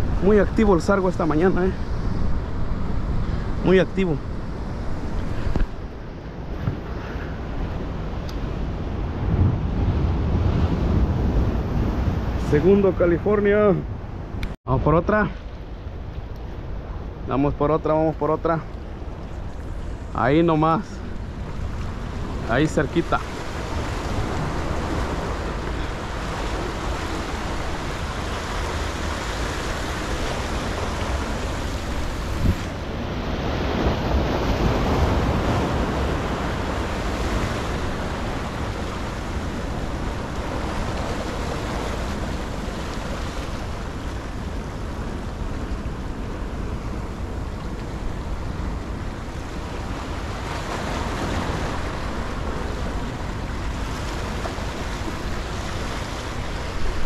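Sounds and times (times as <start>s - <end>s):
wind rumbling on microphone: 0.0s - 14.6s, 15.4s - 57.0s
surf breaking against rocks: 21.2s - 57.0s.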